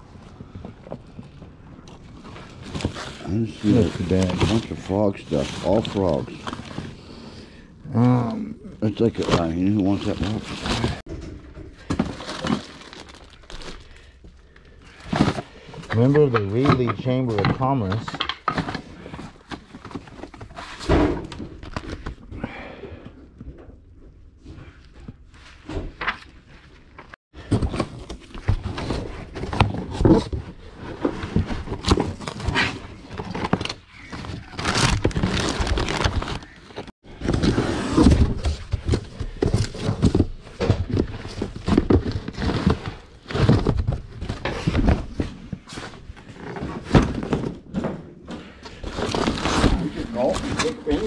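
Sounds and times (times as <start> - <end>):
rustling: 0.2 - 7.6
items knocking and thudding: 9.0 - 22.4, 23.4 - 51.0.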